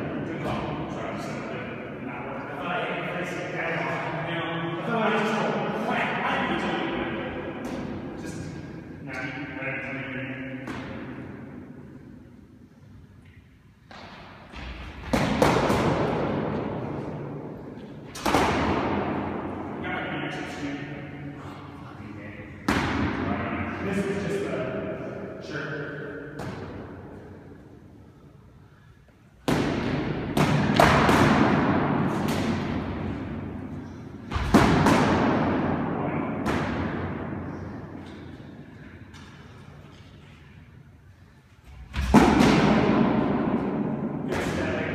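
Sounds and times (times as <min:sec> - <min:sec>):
padded practice swords clashing: 0:13.9 - 0:21.5, 0:29.4 - 0:40.6, 0:41.6 - 0:44.9.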